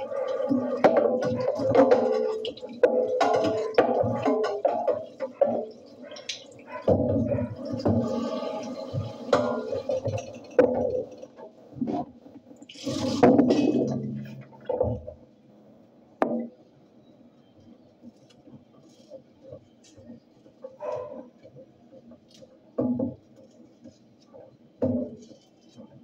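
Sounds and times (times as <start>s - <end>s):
dishes knocking and clinking: 0.5s - 8.4s, 13.2s - 15.2s
tap water splashing: 0.5s - 11.2s.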